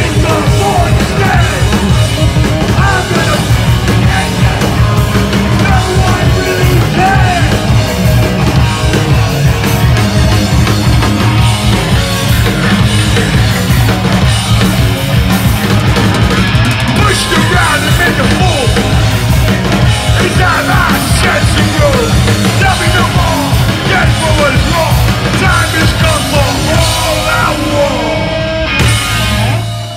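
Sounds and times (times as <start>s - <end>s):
singer yelling into microphone: 0.0s - 1.7s, 5.5s - 7.7s, 17.0s - 18.8s, 20.2s - 28.5s
punk band playing loud: 0.0s - 29.9s.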